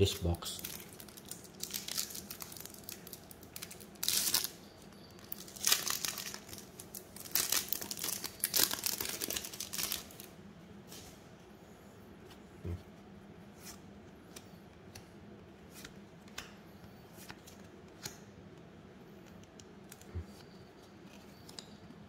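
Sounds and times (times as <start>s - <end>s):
wrapper crinkling and tearing: 0.5s - 10.3s.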